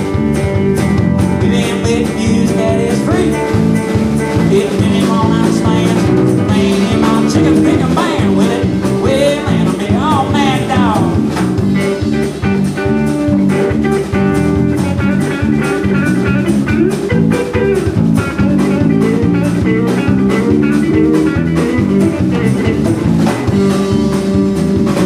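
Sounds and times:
bass guitar: 0:00.0 - 0:25.0
drum kit beat: 0:00.0 - 0:25.0
electric guitar: 0:00.0 - 0:25.0.

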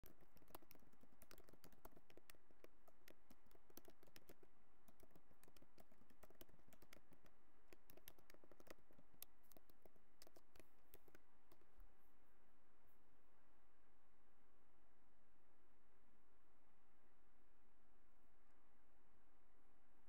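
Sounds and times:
keyboard key clicks: 0:00.0 - 0:11.7.

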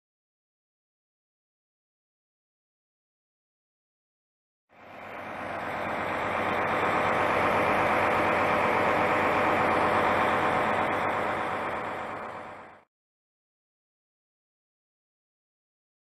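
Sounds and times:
diesel engine idling: 0:04.7 - 0:12.9.

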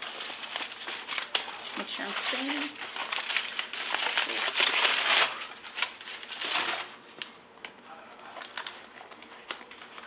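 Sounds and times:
packing material rustling: 0:00.0 - 0:07.4, 0:08.2 - 0:10.0.

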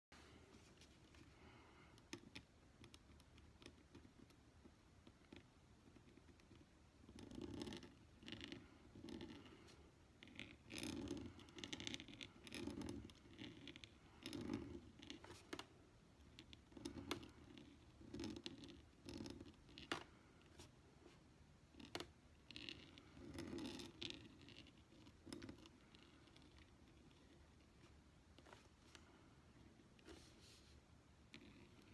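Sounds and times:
pen nib scratching paper: 0:05.2 - 0:15.6, 0:16.2 - 0:21.2, 0:21.8 - 0:29.1, 0:29.7 - 0:31.9.

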